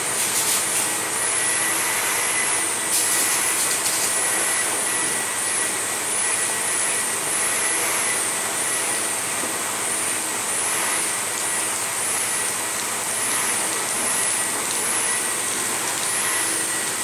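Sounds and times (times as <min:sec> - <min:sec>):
car wash brush and spray rushing: 0:00.0 - 0:01.2
faint high machinery whine: 0:00.0 - 0:17.0.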